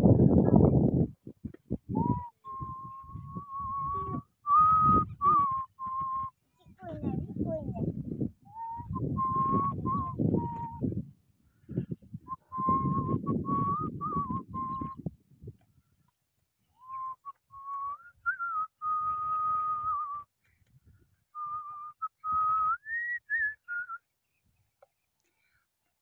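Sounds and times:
wind rumble on microphone: 0:00.0 - 0:16.1, 0:17.0 - 0:23.6
person whistling a slow tune: 0:01.9 - 0:06.4, 0:08.5 - 0:11.0, 0:12.3 - 0:15.1, 0:16.8 - 0:20.3, 0:21.4 - 0:24.0.

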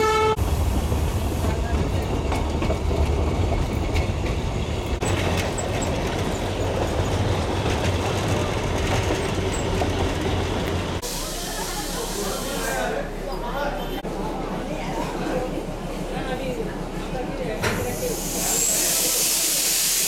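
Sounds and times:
train wheels rumbling: 0:00.0 - 0:13.2.

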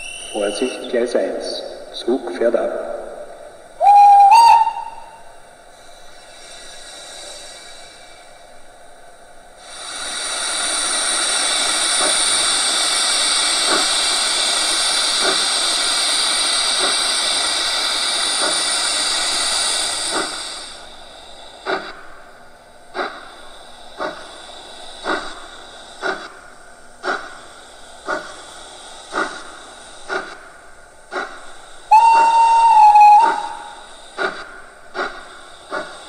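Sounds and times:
steam hiss from cylinder drain cocks: 0:00.0 - 0:36.0
steam locomotive exhaust chuffs: 0:00.0 - 0:36.0.

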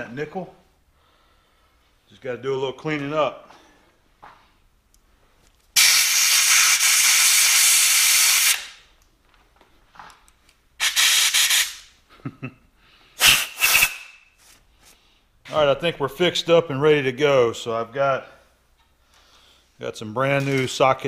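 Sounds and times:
compressed air blow gun blasting: 0:05.8 - 0:08.8, 0:10.8 - 0:11.9, 0:13.2 - 0:14.2.

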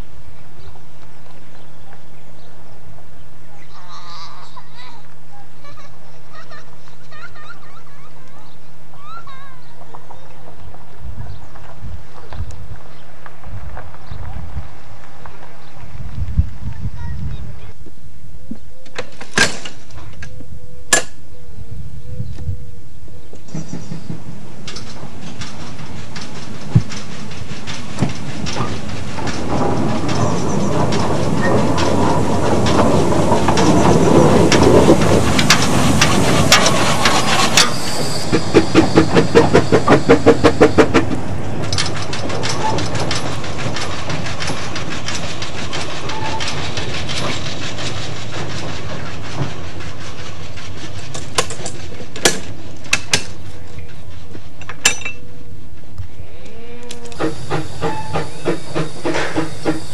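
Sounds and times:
steam locomotive exhaust beats: 0:08.6 - 0:59.9
steam rushing: 0:22.8 - 0:56.4, 0:57.0 - 0:59.9
metallic clanks of track points: 0:23.4 - 0:48.0.

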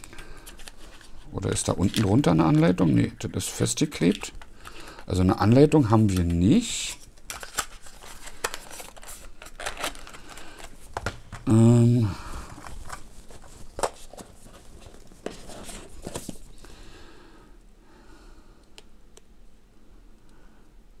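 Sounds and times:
man humming: 0:11.4 - 0:12.4.

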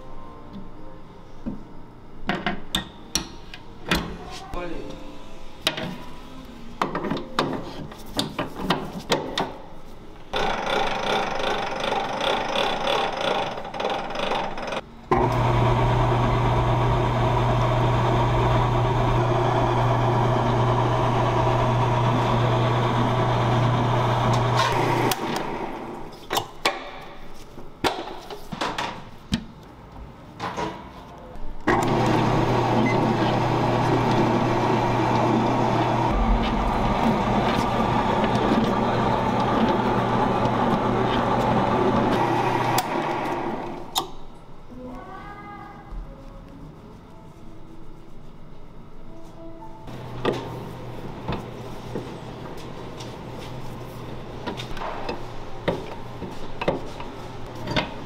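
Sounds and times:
stand mixer motor hum: 0:15.1 - 0:26.0, 0:31.7 - 0:43.8.

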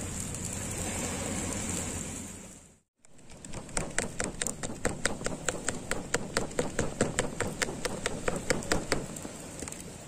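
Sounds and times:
rapid regular tapping: 0:03.1 - 0:09.2.

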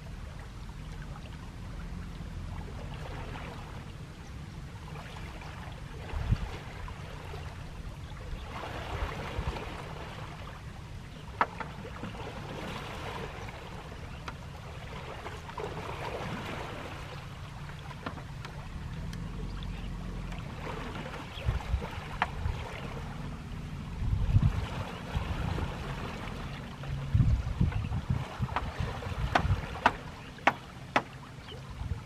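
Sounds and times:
steady low rumble: 0:00.0 - 0:32.0
water sloshing and splashing: 0:00.0 - 0:32.0.

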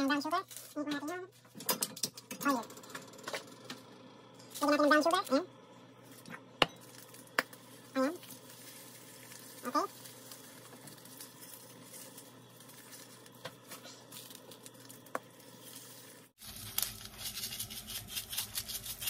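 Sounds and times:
sugar grains pattering: 0:06.0 - 0:19.0.

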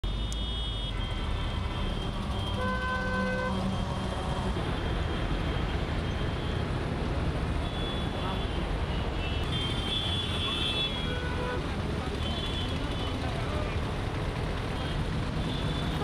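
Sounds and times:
outdoor street noise: 0:00.0 - 0:16.0
vehicle horn: 0:00.3 - 0:03.8.

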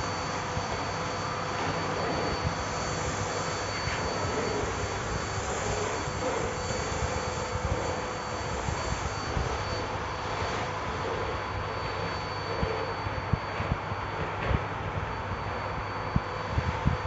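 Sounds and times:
vacuum nozzle on floor: 0:00.0 - 0:12.9
vacuum cleaner running: 0:00.0 - 0:17.0.

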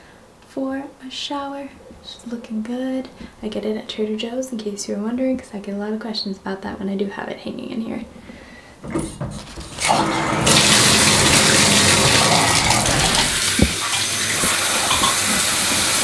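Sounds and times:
shower water spraying on tiles: 0:09.1 - 0:16.0.

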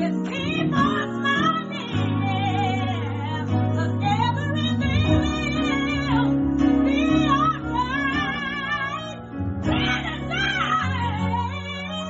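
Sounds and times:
gospel singing: 0:00.0 - 0:12.0
steady bass notes: 0:00.0 - 0:12.0.

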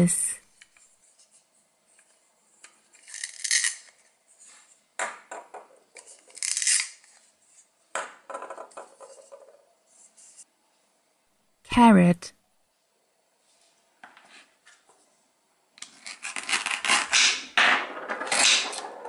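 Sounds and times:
velcro tearing: 0:03.0 - 0:03.9, 0:06.3 - 0:07.1, 0:15.8 - 0:17.4.

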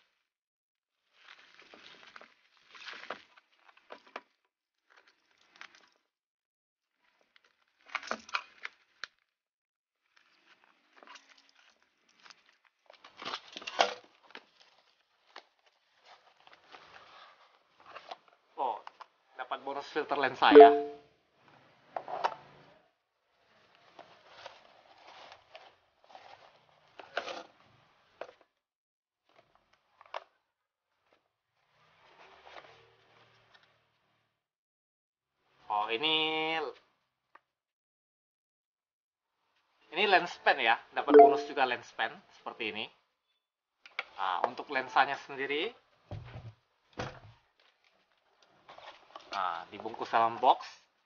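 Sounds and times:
packing tape and cardboard crinkling: 0:10.2 - 0:18.3
cardboard parcel rustling: 0:24.0 - 0:27.4.

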